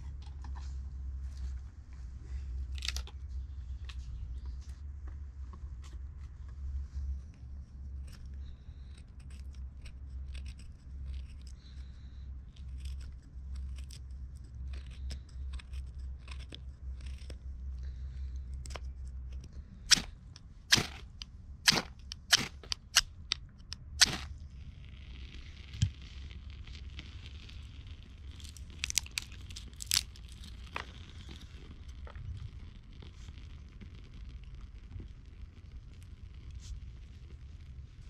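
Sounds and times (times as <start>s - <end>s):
knife shaving wood: 7.1s - 23.0s, 25.4s - 32.1s.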